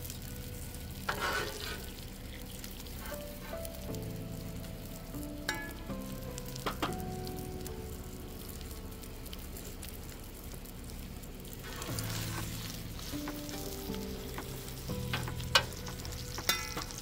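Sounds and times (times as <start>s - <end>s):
steak and fries sizzling: 0.0s - 17.0s
metal utensil in steel bowl: 16.4s - 17.0s.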